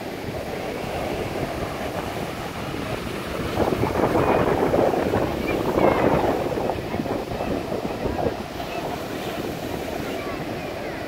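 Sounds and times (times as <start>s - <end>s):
waves breaking on beach: 0.0s - 11.0s.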